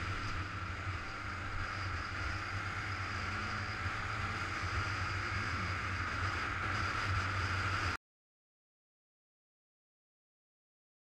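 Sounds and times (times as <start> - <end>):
motorcycle engine cruising: 0.0 - 8.0.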